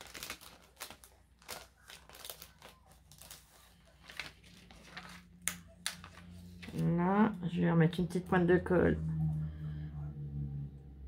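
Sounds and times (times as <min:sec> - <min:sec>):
paper rustling: 0:00.0 - 0:06.9.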